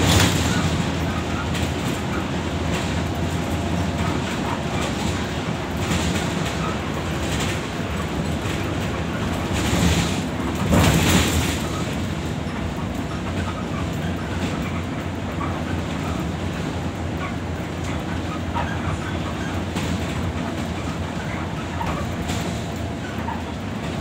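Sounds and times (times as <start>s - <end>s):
rushing noise: 0.0s - 13.5s
bus engine and road rumble: 0.0s - 24.0s.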